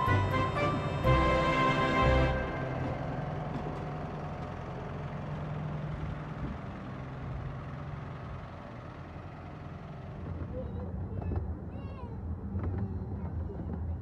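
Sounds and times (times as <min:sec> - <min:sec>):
diesel locomotive engine humming: 0:00.0 - 0:10.8.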